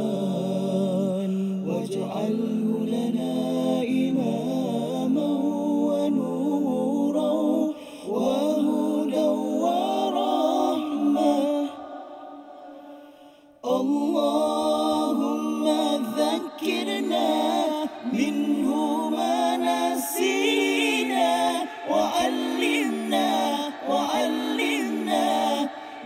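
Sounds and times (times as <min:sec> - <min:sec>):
a cappella voices singing: 0:00.0 - 0:26.0.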